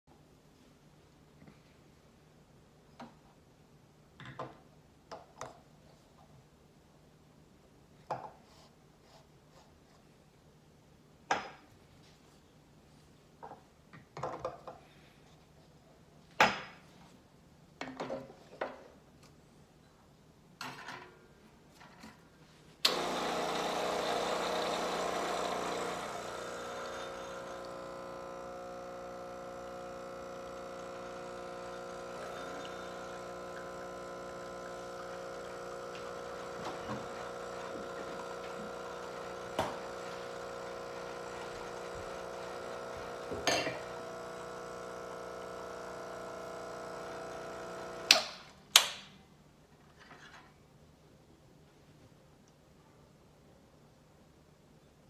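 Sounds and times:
espresso machine pump hum: 0:22.9 - 0:48.2.

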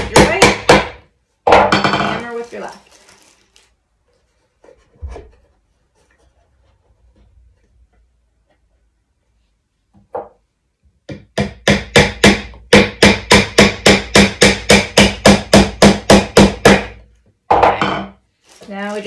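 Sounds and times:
hammer striking nail into wood: 0:00.0 - 0:02.1, 0:11.1 - 0:18.1.

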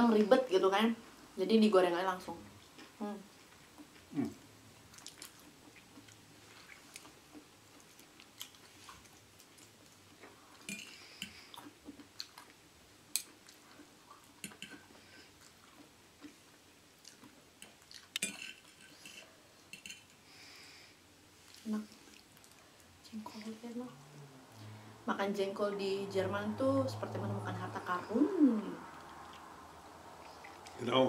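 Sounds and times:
person chewing: 0:02.7 - 0:20.2, 0:21.4 - 0:22.9, 0:28.8 - 0:30.8.

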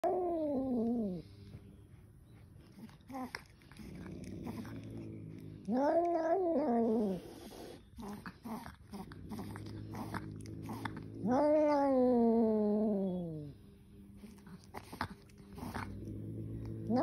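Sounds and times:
cat growling: 0:00.0 - 0:01.3, 0:02.7 - 0:13.6, 0:14.2 - 0:17.0
cat yowling: 0:11.2 - 0:13.4.

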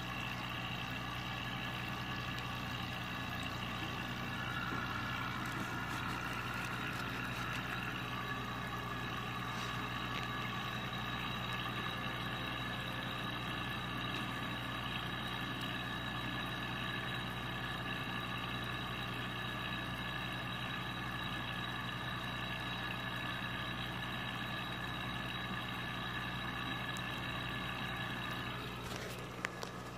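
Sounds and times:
mechanical hum with whine: 0:00.0 - 0:29.9.

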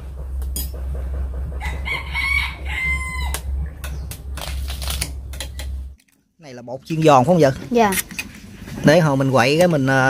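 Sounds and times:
steady low rumble: 0:00.0 - 0:06.0
rooster crowing: 0:01.6 - 0:03.6.

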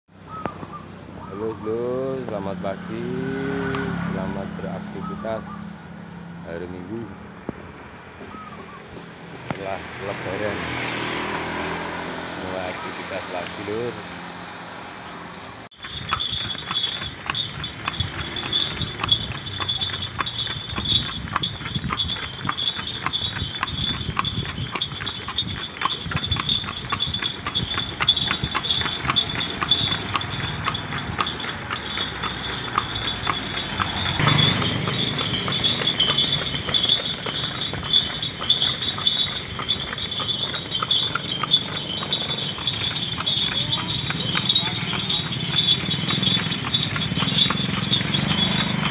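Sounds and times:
horse hooves clip-clopping on asphalt: 0:15.7 - 0:48.9.

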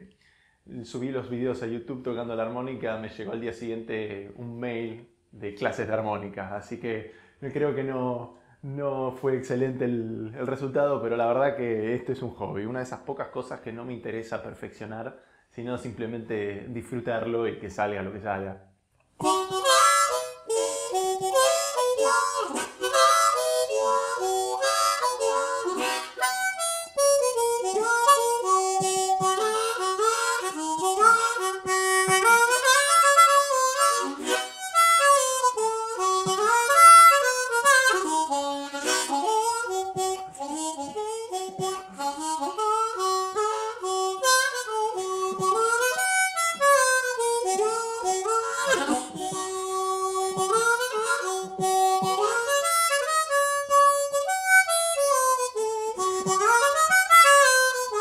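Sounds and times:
harmonica melody: 0:19.2 - 0:58.0.

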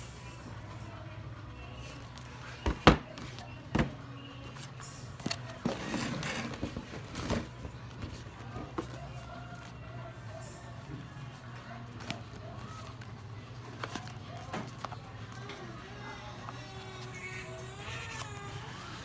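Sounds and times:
rustling handling noise: 0:04.4 - 0:17.2.

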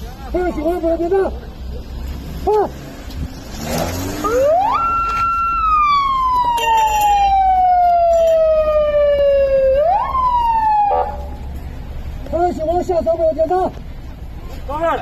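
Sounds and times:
siren wailing: 0:04.2 - 0:11.4.

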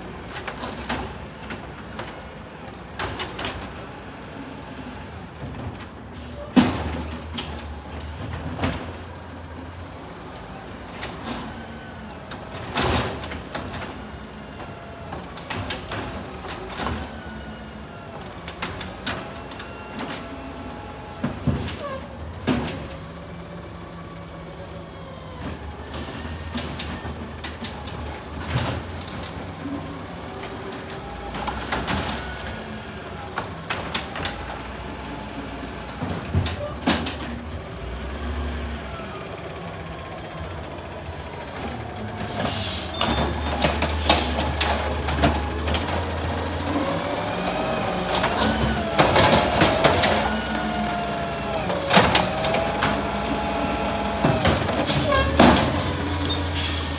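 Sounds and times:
bins banging against truck: 0:48.0 - 0:51.0, 0:54.0 - 0:56.9.

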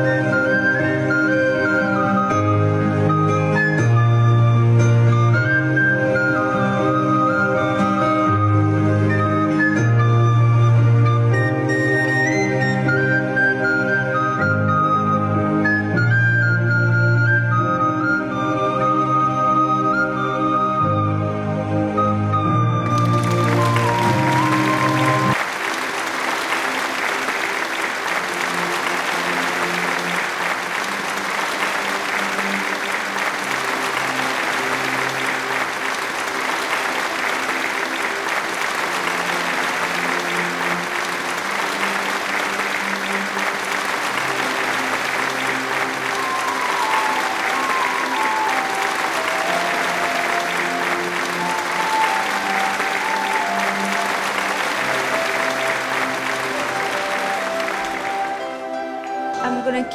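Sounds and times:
audience applauding: 0:00.0 - 0:20.6, 0:22.3 - 0:59.9
higher descending melody: 0:00.0 - 0:25.4, 0:26.0 - 0:59.9
slow background music: 0:00.0 - 0:59.9.

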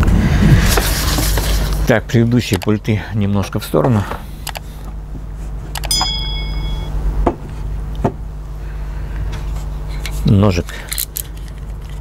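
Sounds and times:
steady low hum: 0:00.0 - 0:12.0
ringing clink: 0:05.8 - 0:07.0.

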